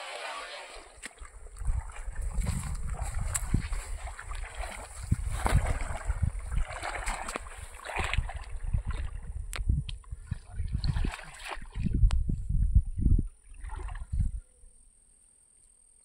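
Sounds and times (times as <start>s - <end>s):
grass rustling: 0.0s - 8.2s
water sloshing: 0.0s - 12.2s, 13.4s - 14.4s
wind buffeting microphone: 1.2s - 14.5s.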